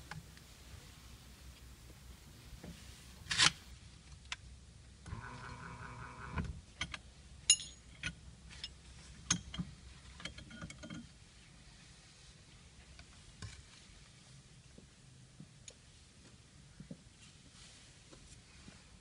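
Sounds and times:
small electric motor whirring: 5.1 - 6.5.

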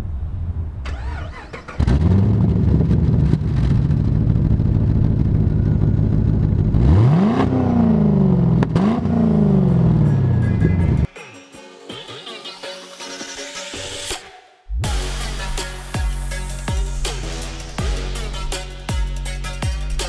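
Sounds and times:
car engine idling and revving: 0.8 - 11.1.

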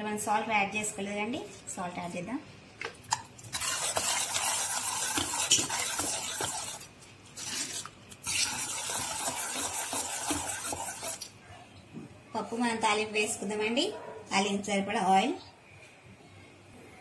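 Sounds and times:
ladle scraping a metal pot: 3.5 - 11.3.

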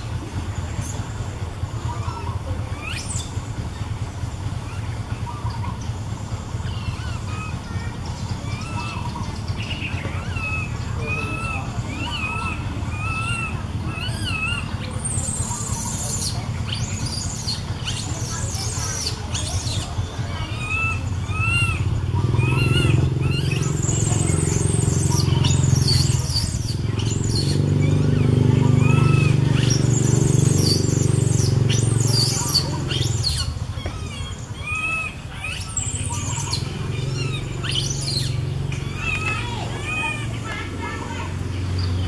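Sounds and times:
low motor hum: 0.0 - 42.0
baby monkey squeaky cries: 8.4 - 9.3, 10.2 - 40.9.

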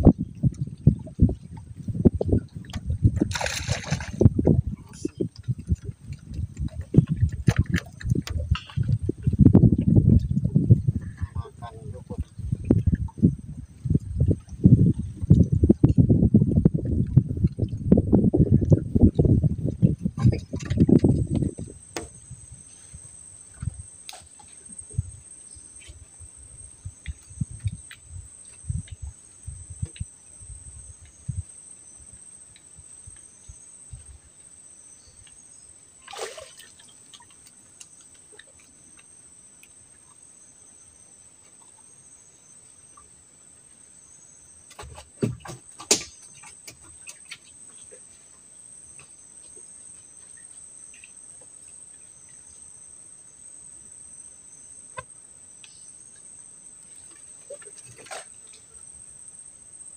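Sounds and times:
insects trilling: 20.2 - 59.9.

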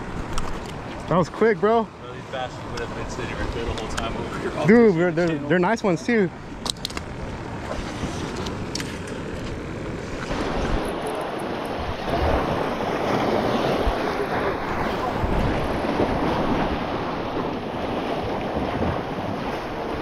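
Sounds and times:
wind on microphone: 7.6 - 20.0
waves washing against rocks: 7.8 - 20.0.

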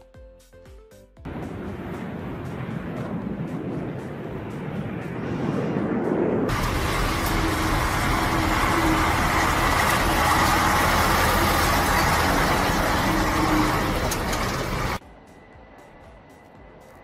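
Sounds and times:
heavy engine noise: 6.5 - 15.0.

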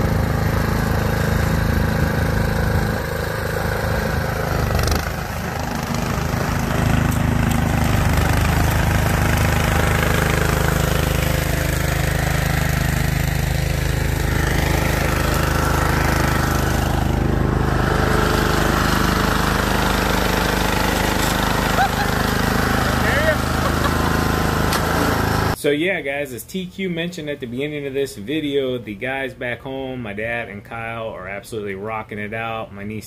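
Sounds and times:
snowblower engine running: 0.0 - 25.6.

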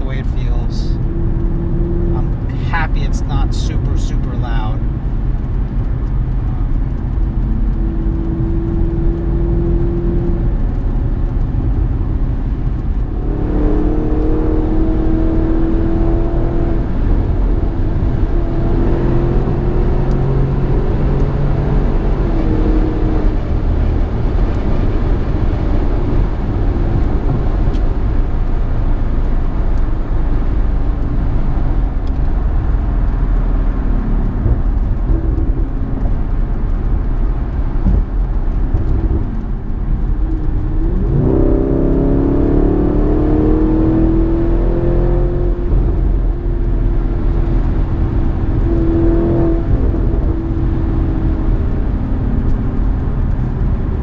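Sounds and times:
car engine from inside cabin: 0.0 - 54.0
tyre and road noise: 0.0 - 54.0.

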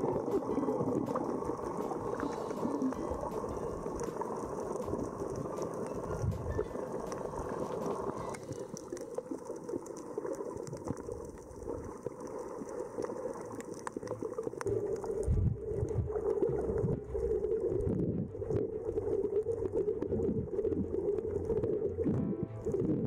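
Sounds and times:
low underwater thumps: 0.0 - 8.2, 14.7 - 18.8
faint clicks and crackles: 0.0 - 23.0
underwater rush of water: 0.0 - 23.0.

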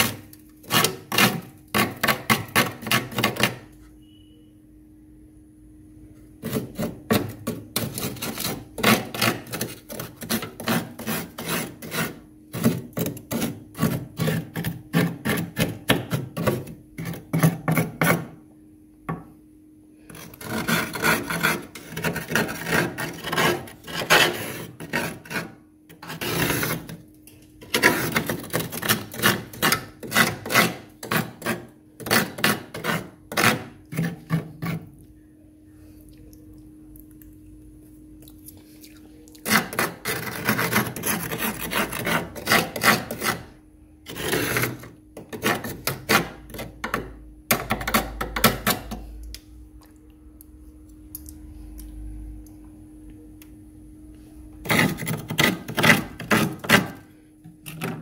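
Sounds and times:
metal spoon scraping frost: 0.0 - 4.4, 6.4 - 18.3, 20.0 - 27.0, 27.6 - 34.9, 39.4 - 47.0, 54.6 - 58.0
steady low hum: 0.0 - 58.0.

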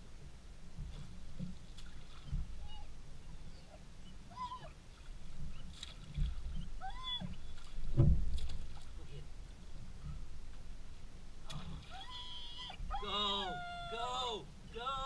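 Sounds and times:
dog whining: 2.6 - 4.8, 6.5 - 7.4, 11.9 - 14.0.

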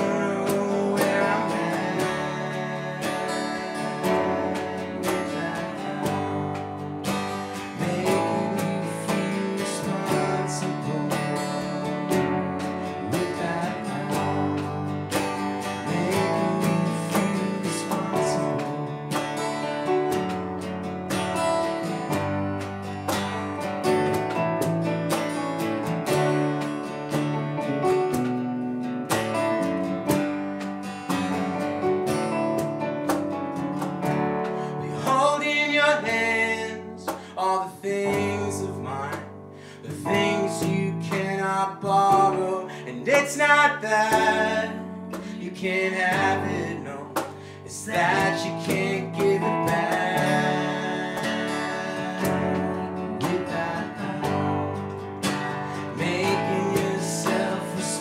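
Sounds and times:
man singing: 0.0 - 19.2, 34.5 - 55.0, 55.6 - 58.0
electric bass: 0.0 - 35.9, 46.1 - 58.0
acoustic guitar strumming: 0.0 - 58.0
electric keyboard: 0.0 - 58.0.

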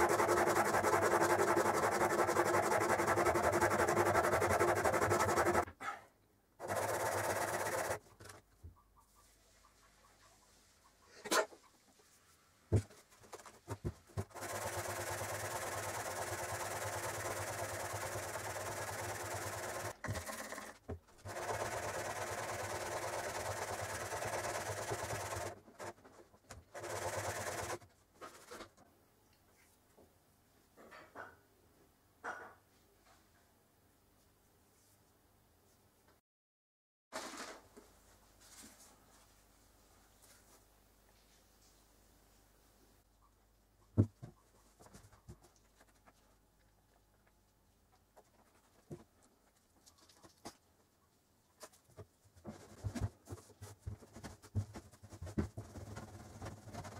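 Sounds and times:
metal rubbing on abrasive paper: 0.0 - 5.7.

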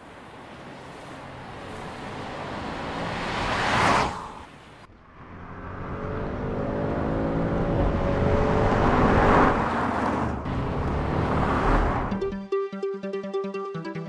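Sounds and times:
car engine accelerating: 5.1 - 12.2
electronic music: 12.1 - 14.0.

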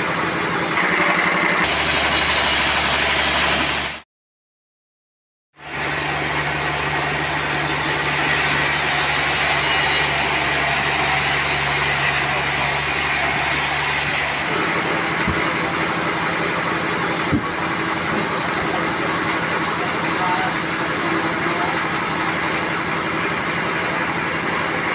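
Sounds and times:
engine running steadily: 0.0 - 4.0, 5.6 - 10.6, 12.3 - 24.9.

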